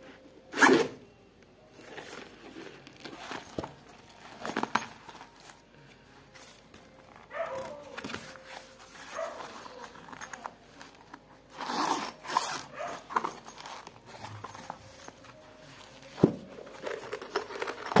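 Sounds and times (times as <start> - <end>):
zipper: 0.5 - 1.0, 7.2 - 18.0
rustling: 1.8 - 18.0
case shutting thump: 16.2 - 16.5.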